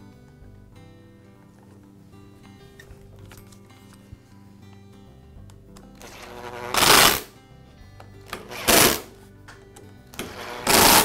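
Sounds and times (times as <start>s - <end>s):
cordless drill driving screws: 6.0s - 7.3s, 8.3s - 9.1s, 10.2s - 11.0s.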